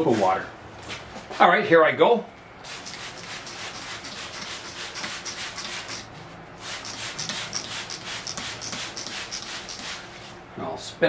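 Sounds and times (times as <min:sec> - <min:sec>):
spray bottle squirting: 0:02.6 - 0:10.1.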